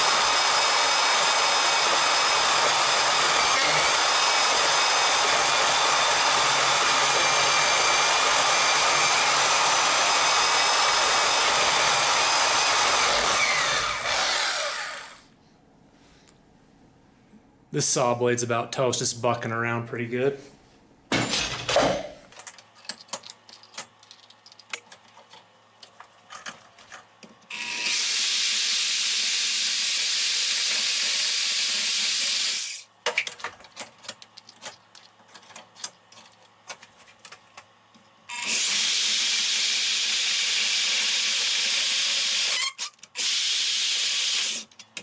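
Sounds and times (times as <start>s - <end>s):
bandsaw cutting metal: 0.0s - 15.3s, 27.5s - 32.9s, 38.3s - 44.7s.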